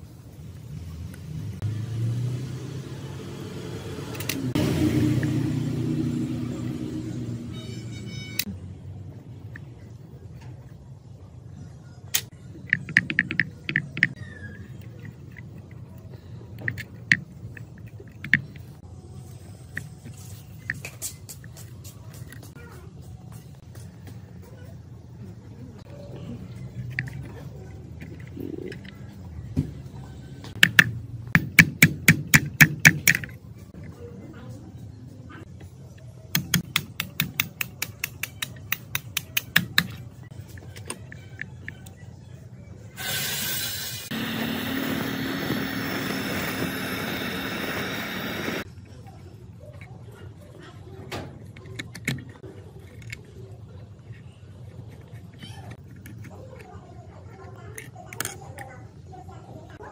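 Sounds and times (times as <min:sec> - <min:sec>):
hammer tapping metal: 0:36.4 - 0:40.0.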